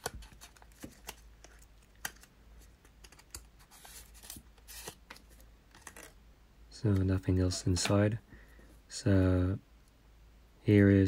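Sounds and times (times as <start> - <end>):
paper rustling on card: 0.0 - 6.2.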